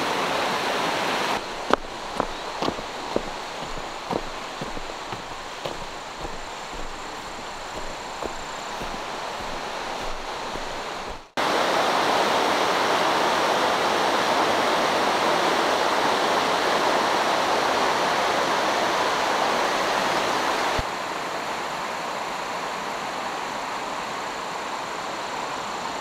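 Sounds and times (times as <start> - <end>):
stream rushing over rocks: 0.0 - 21.7.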